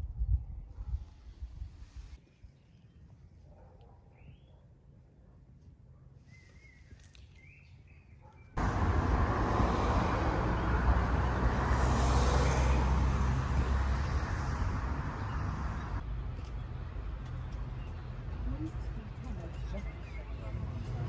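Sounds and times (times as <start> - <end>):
car traffic rumble: 8.6 - 21.0.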